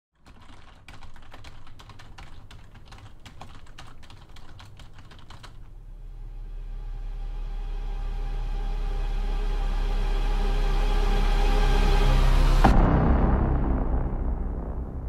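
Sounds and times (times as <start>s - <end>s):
typing on computer keyboard: 0.2s - 5.7s
low rumble: 5.7s - 15.0s.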